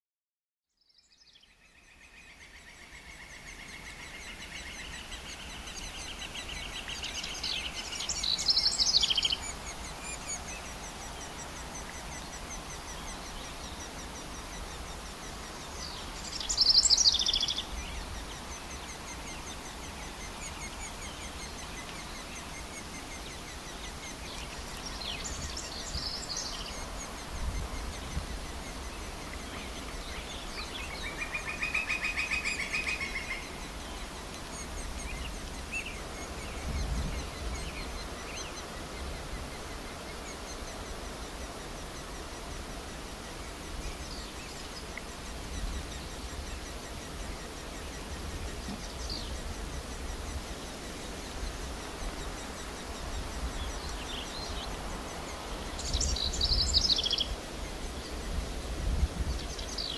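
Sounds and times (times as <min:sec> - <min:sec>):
birds singing: 0:00.7 - 0:59.9
outdoor ambience: 0:00.9 - 0:59.9
high rapid trilling bird calls: 0:01.6 - 0:42.6.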